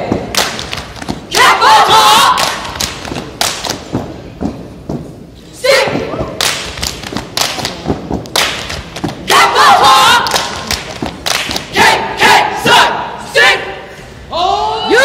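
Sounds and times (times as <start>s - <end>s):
stomping and clapping: 0.0s - 5.1s, 5.7s - 12.8s
group shouting a chant: 1.3s - 2.5s, 9.3s - 10.3s, 11.7s - 13.8s.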